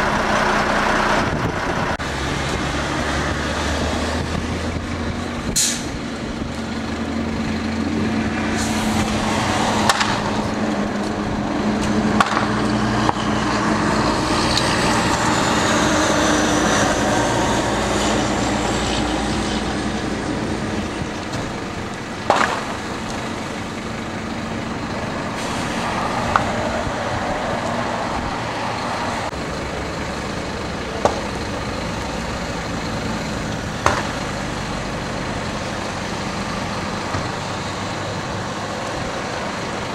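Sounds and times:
diesel engine running: 0:00.0 - 0:39.9
fire popping and cracking: 0:20.7 - 0:23.3.

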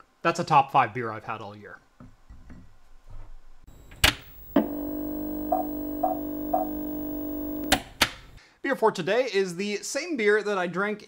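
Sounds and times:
sharp clicks: 0:03.8 - 0:08.4.

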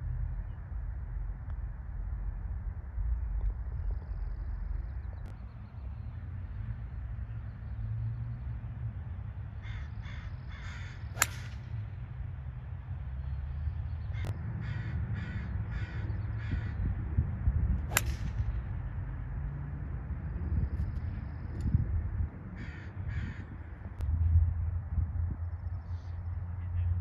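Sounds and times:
low steady rumble: 0:00.0 - 0:27.0
crow cawing: 0:09.6 - 0:11.0, 0:14.1 - 0:16.8, 0:22.6 - 0:23.6
golf club striking ball: 0:11.1 - 0:11.8, 0:17.9 - 0:18.6.

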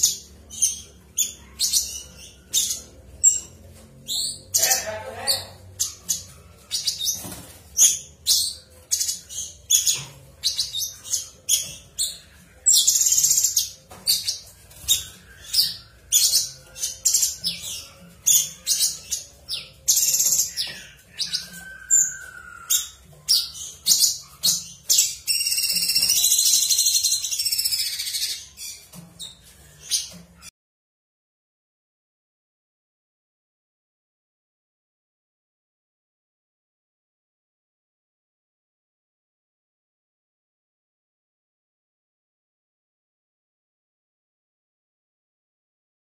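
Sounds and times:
bird singing: 0:00.0 - 0:30.5.

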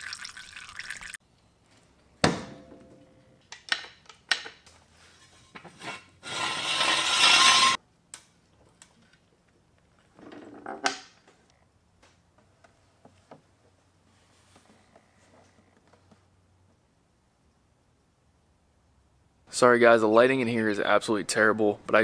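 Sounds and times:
jack scraping across concrete: 0:05.1 - 0:07.8
floor jack clanking: 0:05.6 - 0:07.8.

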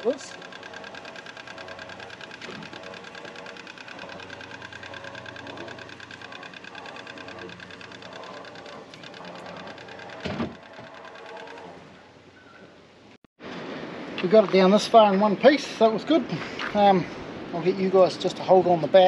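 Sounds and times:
winch motor whirring: 0:00.0 - 0:12.0.

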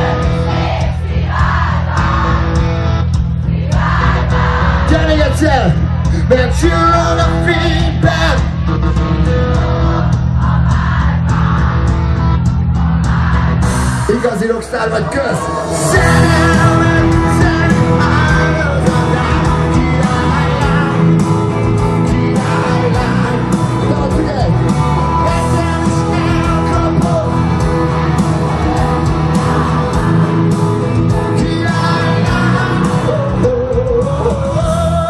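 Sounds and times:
loud amplified pop music: 0:00.0 - 0:35.0
man singing into microphone: 0:15.6 - 0:27.4, 0:31.1 - 0:35.0.

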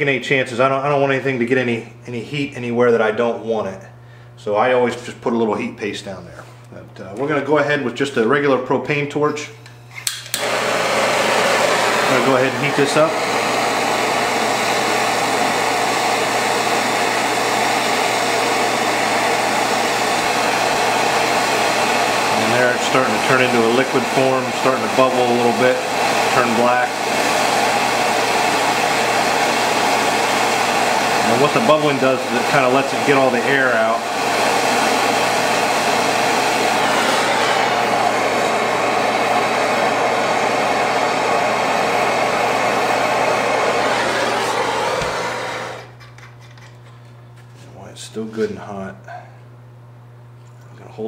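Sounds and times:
propane torch hissing: 0:10.0 - 0:46.0.

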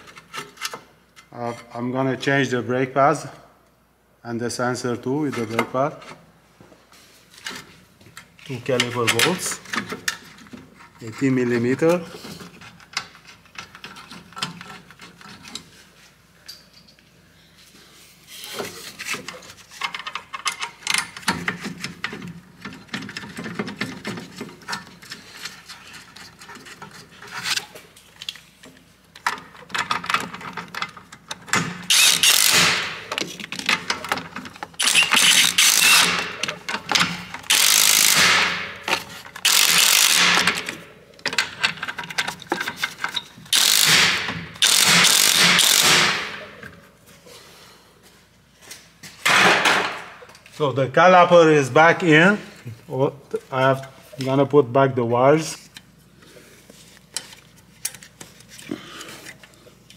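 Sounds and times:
cordless power tool running: 0:31.9 - 0:32.6, 0:34.8 - 0:36.2, 0:37.5 - 0:38.3, 0:44.6 - 0:46.0.

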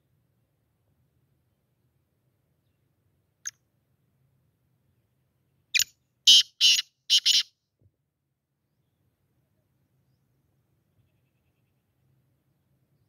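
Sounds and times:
bird calling harsh scratchy notes: 0:06.3 - 0:07.5.

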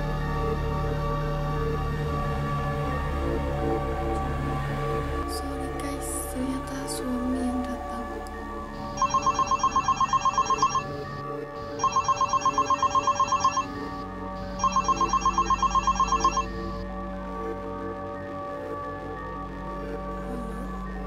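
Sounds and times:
warbling electronic phone ring: 0:08.8 - 0:16.8.

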